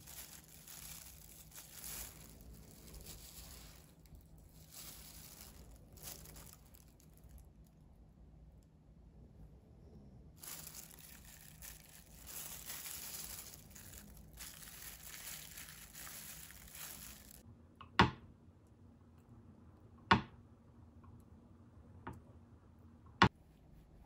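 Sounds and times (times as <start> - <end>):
plastic gloves crinkling: 0.0 - 7.8, 10.4 - 17.4.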